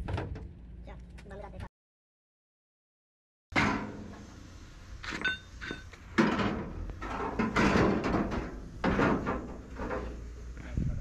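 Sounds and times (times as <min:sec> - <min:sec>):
metal door knocking and scraping: 0:06.2 - 0:10.2.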